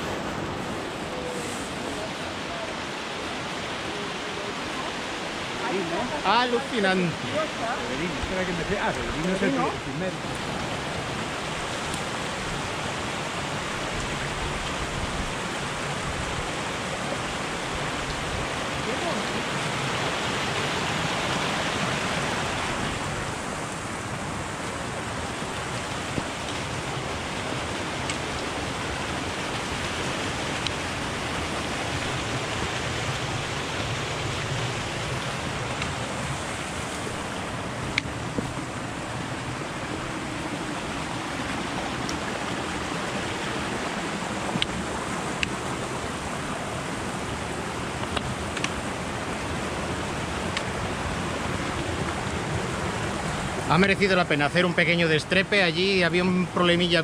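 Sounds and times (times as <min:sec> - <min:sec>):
stream rushing over rocks: 0:00.0 - 0:57.0.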